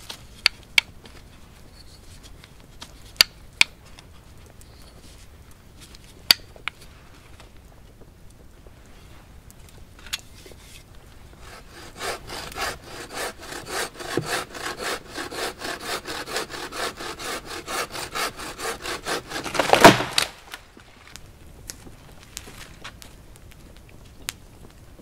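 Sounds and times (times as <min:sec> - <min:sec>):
loud wood crack: 0:11.0 - 0:23.1
bow saw cutting log: 0:11.4 - 0:20.3.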